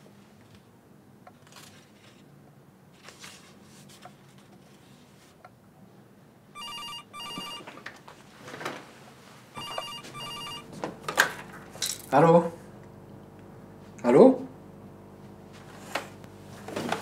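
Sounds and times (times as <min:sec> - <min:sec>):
landline telephone ringing: 0:06.6 - 0:07.7, 0:09.6 - 0:10.8.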